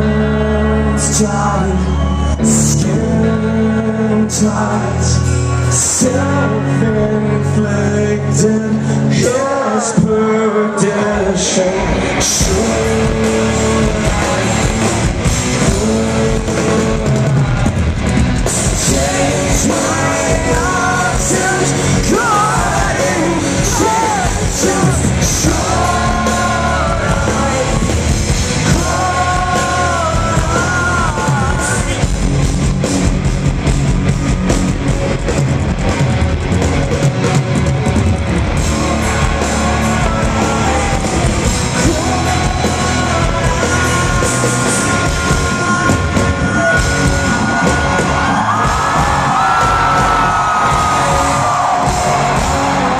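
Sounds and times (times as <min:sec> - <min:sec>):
man singing lead vocal: 0:00.0 - 0:32.3, 0:39.1 - 0:52.9
live rock band playing: 0:00.0 - 0:52.9.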